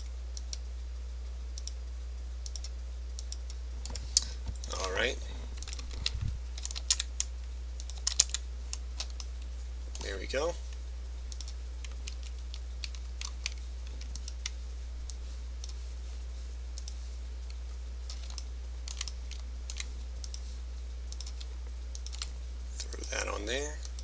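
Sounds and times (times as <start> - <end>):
low electrical hum: 0.0 - 24.0
computer mouse clicks: 1.6 - 1.8, 2.4 - 4.9, 11.3 - 15.8, 16.8 - 20.5, 21.1 - 23.2
keyboard clicks: 5.6 - 9.3, 11.3 - 15.8, 18.1 - 20.4, 21.1 - 23.2.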